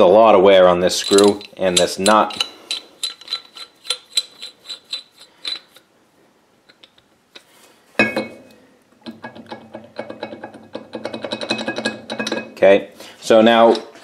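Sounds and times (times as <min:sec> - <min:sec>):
metal clicks: 0:01.0 - 0:05.9, 0:06.6 - 0:08.3.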